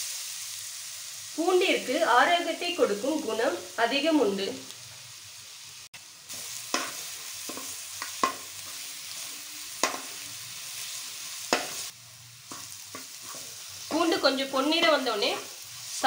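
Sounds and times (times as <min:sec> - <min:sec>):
garlic sizzling in oil: 0:00.0 - 0:16.0
spoon scraping a pan: 0:10.8 - 0:14.3.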